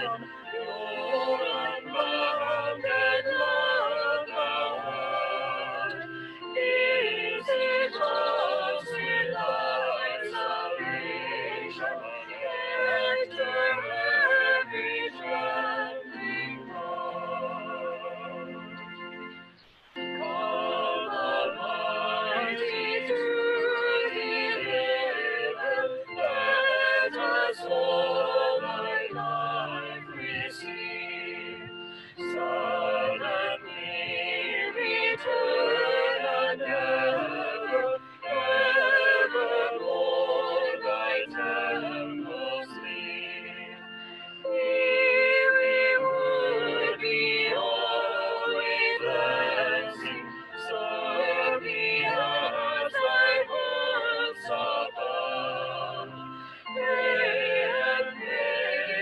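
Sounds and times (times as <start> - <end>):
mixed choir singing: 0.0 - 18.8, 20.0 - 59.0
singers breathing: 31.9 - 32.2, 56.4 - 56.7.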